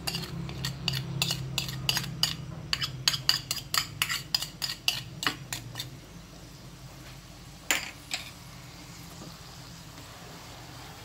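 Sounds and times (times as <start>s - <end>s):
metal spoon scraping ceramic bowl: 0.0s - 5.9s.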